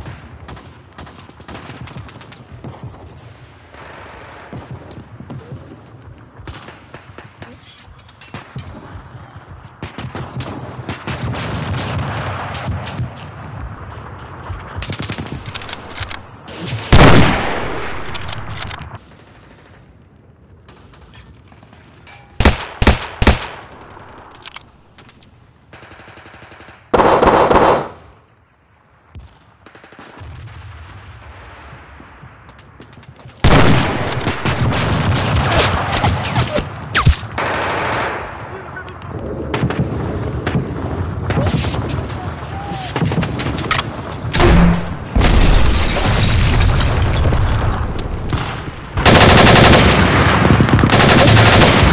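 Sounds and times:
rifle gunfire: 16.9 - 18.8, 22.4 - 24.3, 25.9 - 28.1, 33.4 - 36.4, 43.0 - 45.7, 48.3 - 51.9.

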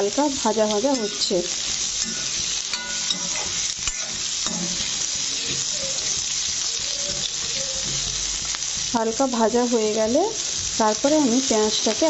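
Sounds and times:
onions sizzling in hot oil: 0.0 - 12.0
spatula scraping a pan: 0.8 - 8.9.

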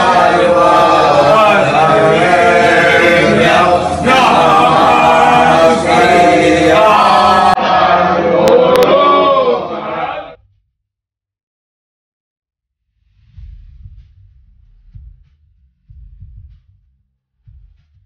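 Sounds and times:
men chanting a hymn in unison: 0.0 - 10.4.

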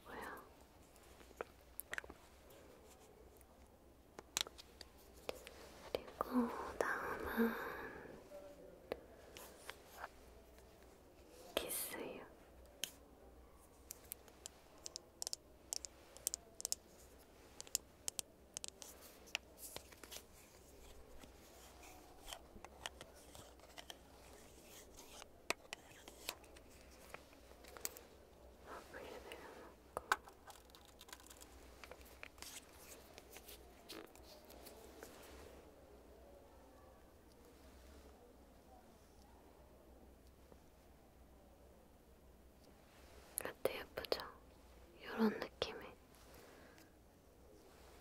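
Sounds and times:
plastic lipstick caps clicking: 14.8 - 16.8, 30.0 - 32.4.

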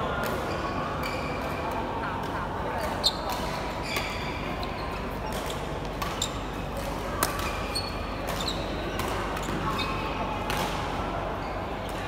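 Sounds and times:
shoes squeaking on court floor: 0.4 - 1.6, 2.8 - 6.6, 7.3 - 10.2.

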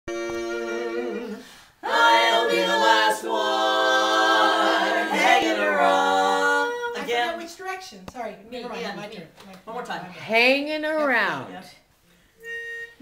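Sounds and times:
women singing close harmony: 0.1 - 7.1.

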